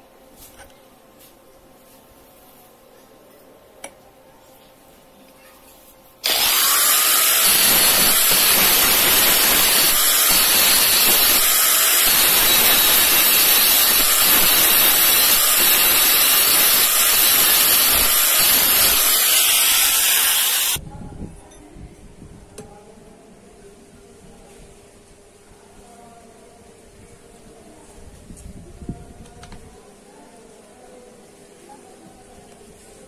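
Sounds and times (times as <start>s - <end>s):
angle grinder grinding steel: 6.2s - 20.8s.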